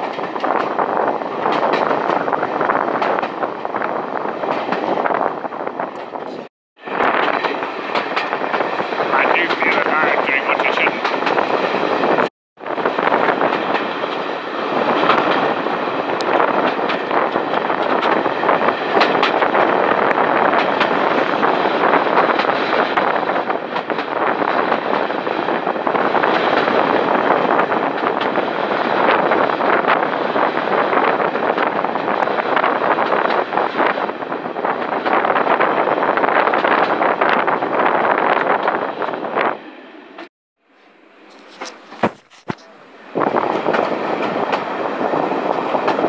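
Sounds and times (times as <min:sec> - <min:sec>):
train wheels rumbling on rail: 0:00.0 - 0:40.3, 0:41.1 - 0:46.0.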